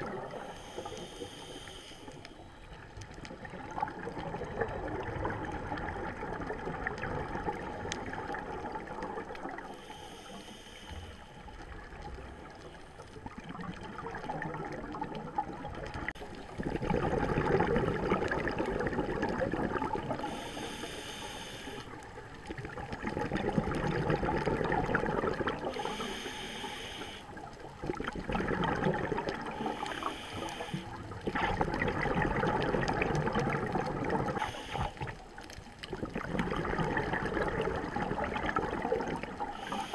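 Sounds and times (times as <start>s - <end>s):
exhaled bubbles gurgling: 0.0s - 10.0s, 11.4s - 39.9s
regulator inhalation hiss: 0.4s - 2.5s, 9.8s - 11.4s, 20.2s - 22.0s, 25.7s - 27.4s, 29.6s - 31.0s, 34.4s - 35.1s, 39.5s - 39.9s.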